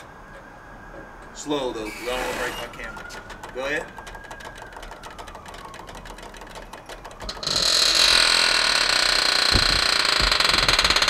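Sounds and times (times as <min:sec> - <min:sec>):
low thumps of truck settling: 0:09.5 - 0:10.8.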